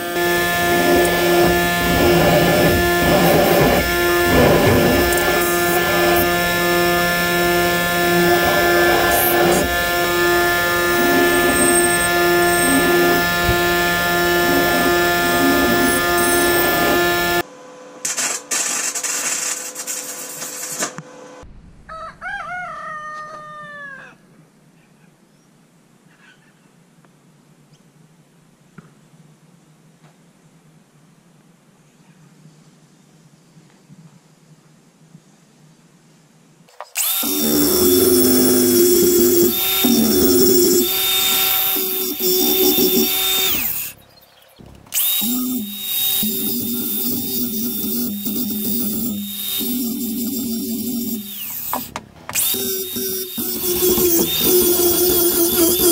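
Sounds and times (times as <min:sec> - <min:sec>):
angle grinder grinding steel: 0:00.0 - 0:17.5, 0:36.9 - 0:44.0, 0:44.6 - 0:55.9
harsh irregular noise: 0:00.0 - 0:21.5, 0:36.9 - 0:44.0, 0:44.6 - 0:55.9
rooster crowing: 0:21.8 - 0:24.3.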